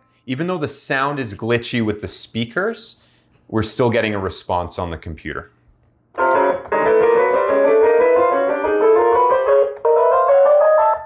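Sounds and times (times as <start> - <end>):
person talking: 0.3 - 5.6
digital piano playing intervals: 6.2 - 11.0.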